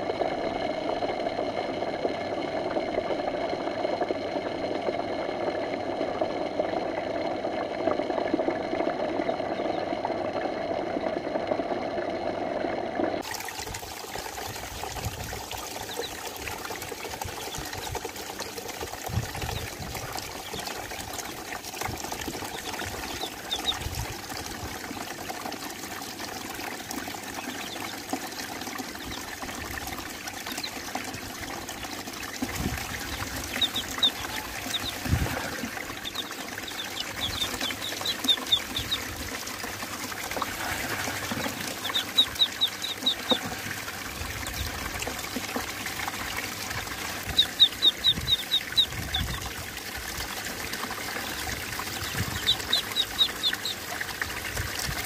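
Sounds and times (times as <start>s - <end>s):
water swirling and trickling: 13.2s - 55.0s
ducklings peeping: 15.8s - 16.2s, 17.3s - 18.0s, 19.4s - 21.4s, 22.1s - 23.9s, 27.4s - 29.3s, 30.5s - 30.8s, 31.7s - 39.1s, 40.7s - 43.7s, 44.4s - 45.7s, 46.9s - 49.5s, 51.1s - 53.8s.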